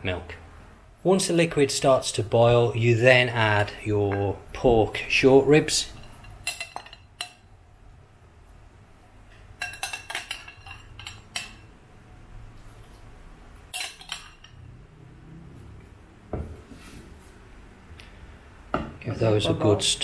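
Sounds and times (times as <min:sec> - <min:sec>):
metal ladle clinking on glass and pot: 0:05.9 - 0:07.5, 0:09.6 - 0:11.7, 0:13.7 - 0:14.6.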